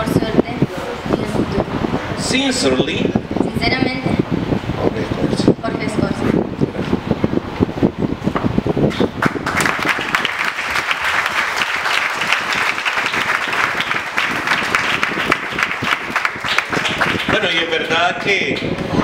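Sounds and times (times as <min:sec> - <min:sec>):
audience applauding: 0:09.2 - 0:17.9.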